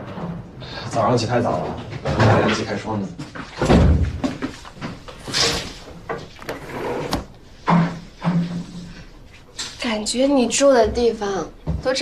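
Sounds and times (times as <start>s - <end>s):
heavy door thud: 3.6s - 4.5s
wooden door opening and shutting: 3.6s - 8.5s.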